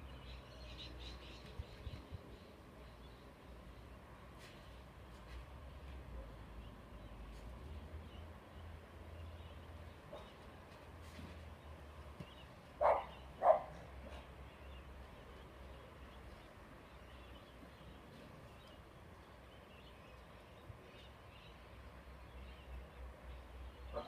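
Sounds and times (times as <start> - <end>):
small dog barking: 12.8 - 13.8.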